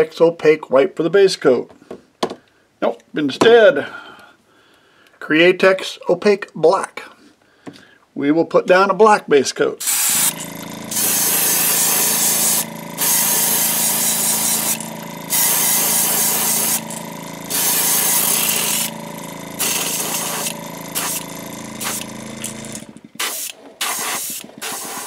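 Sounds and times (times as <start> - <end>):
airbrush hissing: 9.8 - 25.0.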